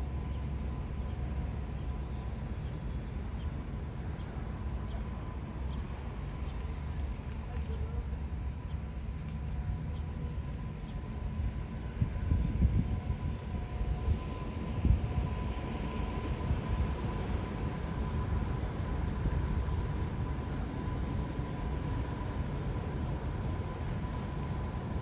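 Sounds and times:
steady low rumble: 0.0 - 25.0
small birds chirping: 0.2 - 14.4.

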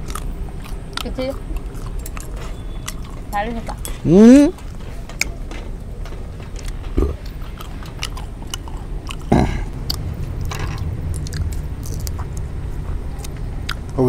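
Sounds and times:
people chewing: 0.0 - 14.0
mouth clicks: 6.6 - 10.0.

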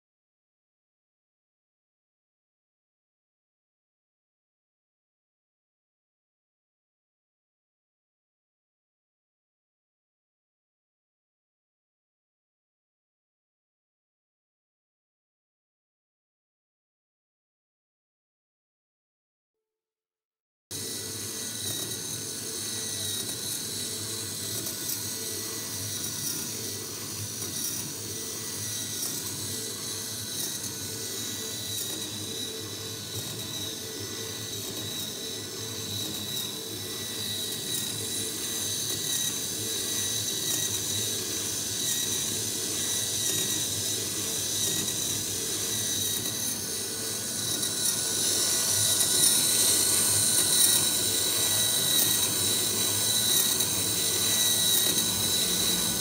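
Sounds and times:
electric motor whine: 20.8 - 56.0.

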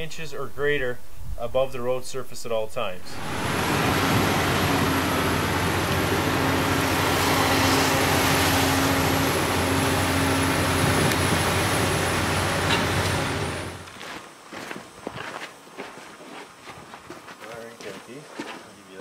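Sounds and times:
log loader diesel hum: 3.0 - 14.2.

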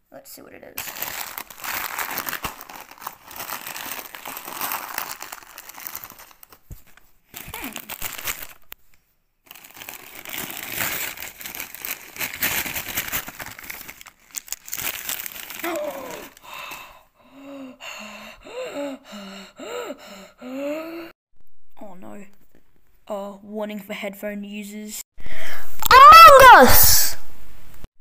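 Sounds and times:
wrapping paper crinkling and tearing: 0.8 - 8.8, 9.4 - 16.6.

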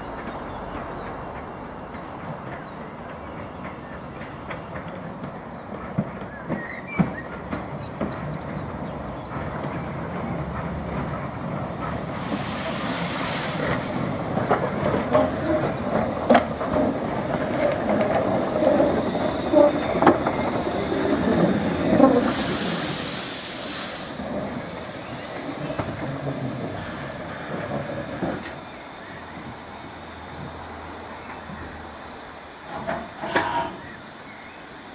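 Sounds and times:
wheels knocking on track: 0.0 - 12.5, 13.6 - 22.4
steam locomotive running: 0.0 - 34.9
steam hissing: 1.7 - 34.9.

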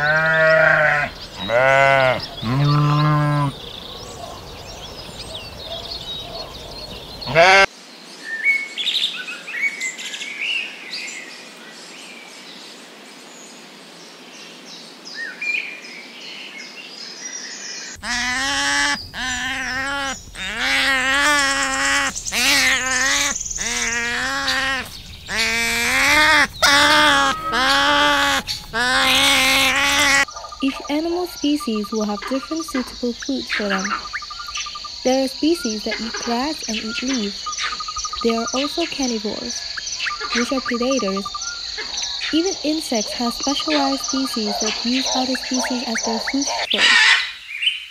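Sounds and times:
faint chirping: 0.4 - 7.7, 17.9 - 46.8
otters squealing: 18.0 - 41.6.

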